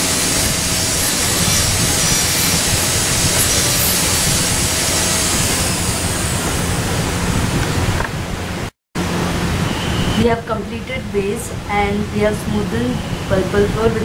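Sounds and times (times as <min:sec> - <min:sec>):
dental drill whining: 0:00.0 - 0:06.8.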